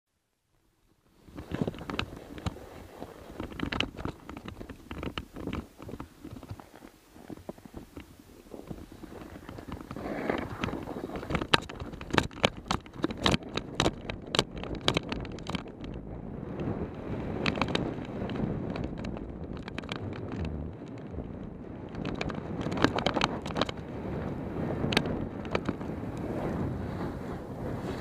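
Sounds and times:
sled scraping over snow: 1.2 - 28.0
sled knocking over bumps: 1.3 - 16.0.

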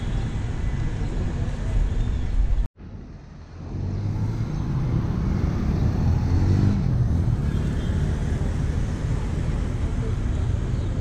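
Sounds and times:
cars and motorcycles passing: 2.8 - 11.0.

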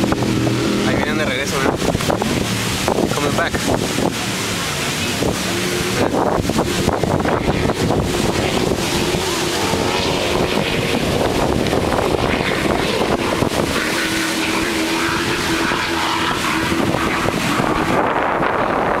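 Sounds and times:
powerboat engines droning: 0.0 - 19.0
wind buffeting microphone: 0.0 - 19.0.

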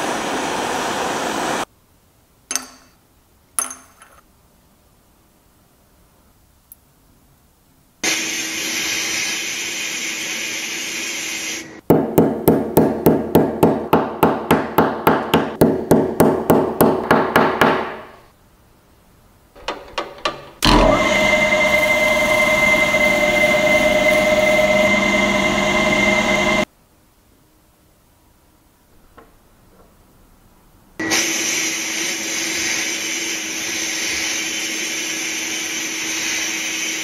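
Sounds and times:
drill press running: 19.6 - 26.7
sandblast gun hissing: 31.1 - 37.0.

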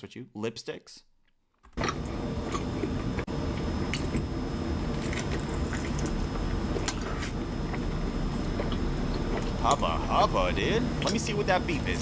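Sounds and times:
wet chewing mouth noises: 4.9 - 10.3.

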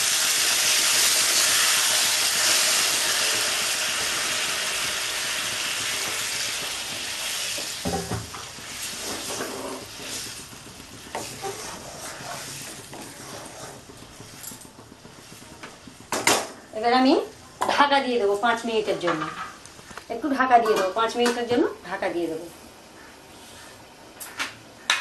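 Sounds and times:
hot oil sizzling in wok: 0.0 - 18.8
wooden spatula scraping pan: 7.2 - 16.1.

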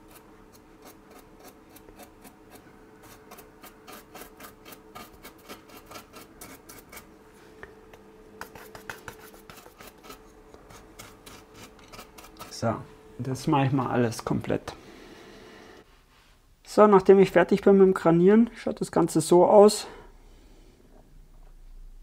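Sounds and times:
faint steady hum: 0.0 - 22.0
paintbrush bristles scratching: 8.4 - 12.8.

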